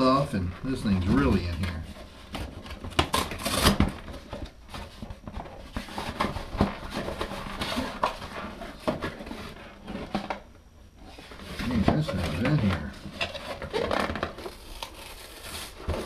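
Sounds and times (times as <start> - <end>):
cardboard box rustling and scraping: 0.8 - 10.2.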